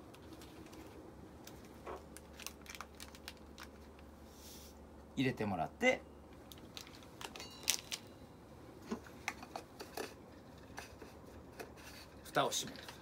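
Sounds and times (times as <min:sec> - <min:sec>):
plastic sachet crinkling: 0:01.8 - 0:04.0, 0:06.4 - 0:08.1.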